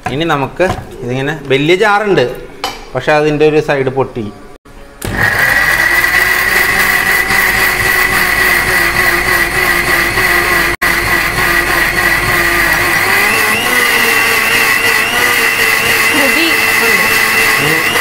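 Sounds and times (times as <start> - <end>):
mixer grinder whining: 5.0 - 18.0.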